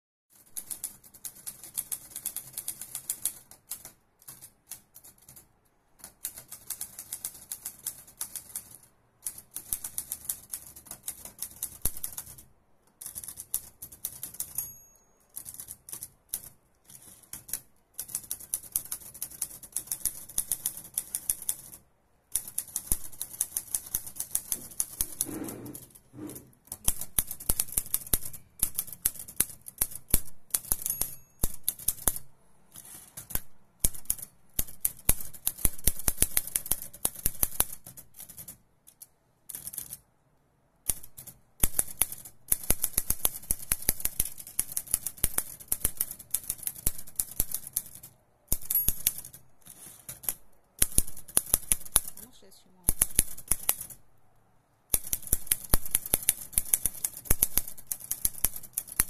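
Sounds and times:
typewriter key strikes: 0:40.9 - 0:49.4.

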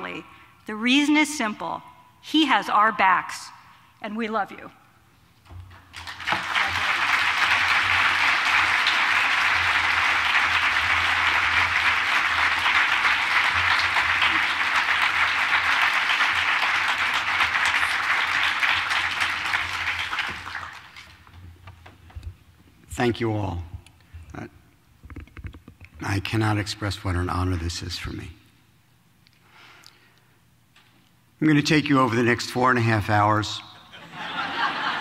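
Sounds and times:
audience applauding: 0:05.8 - 0:21.4.

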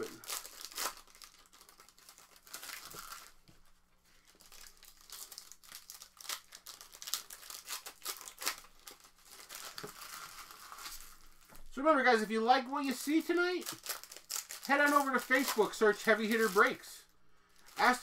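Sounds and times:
packaging tearing: 0:00.0 - 0:03.4, 0:04.4 - 0:11.4, 0:13.6 - 0:16.8
wrappers crinkling: 0:00.0 - 0:03.5, 0:04.1 - 0:11.7, 0:12.9 - 0:18.0.

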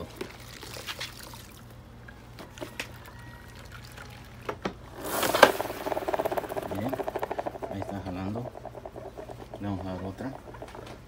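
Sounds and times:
water sloshing and dripping: 0:00.0 - 0:04.5.

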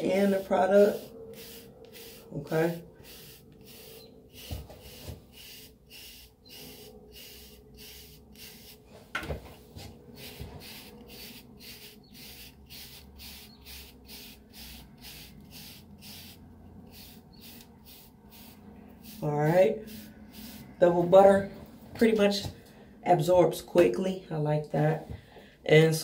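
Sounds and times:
brush bristles rubbing hair: 0:00.0 - 0:09.0, 0:09.6 - 0:21.2.

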